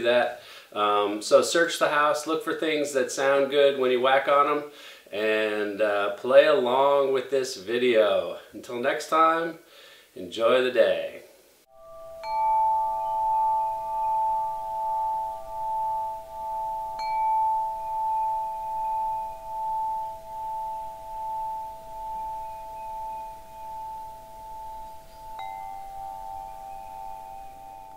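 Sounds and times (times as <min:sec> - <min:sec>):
metal tube wind chime ringing: 0:11.7 - 0:27.9.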